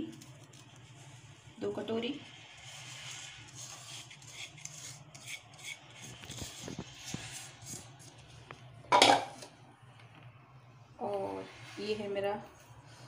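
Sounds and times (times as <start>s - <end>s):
powdered sugar scraped from bowl: 0.0s - 8.3s, 11.2s - 13.0s
faint steady hum: 0.0s - 13.0s.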